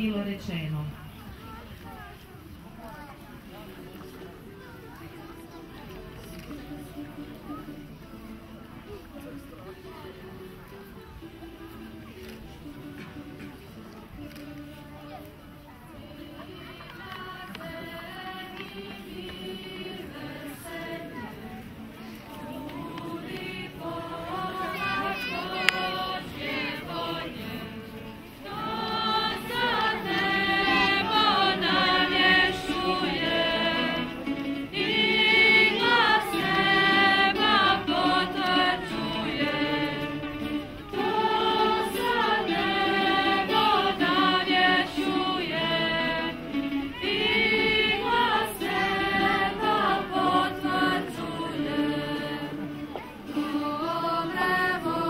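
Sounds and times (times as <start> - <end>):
choir of young voices singing: 12.8 - 55.0.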